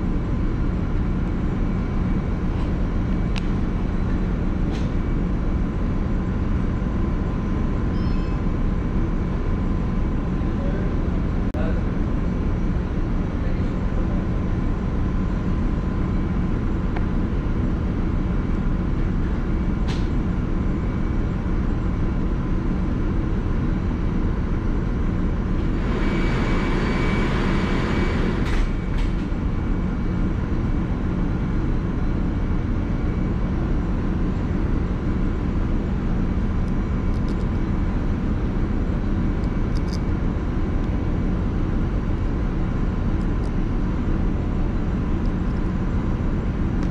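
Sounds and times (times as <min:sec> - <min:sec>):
ship machinery drone: 0:00.0 - 0:46.9
small clicks from handling parts: 0:36.6 - 0:37.6, 0:39.4 - 0:40.1.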